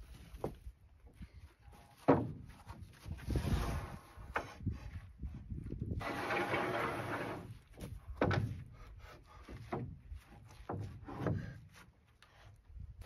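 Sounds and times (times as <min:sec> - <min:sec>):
wooden board scraping: 0:01.8 - 0:04.6, 0:06.0 - 0:08.6
wooden boards knocking: 0:02.0 - 0:02.5.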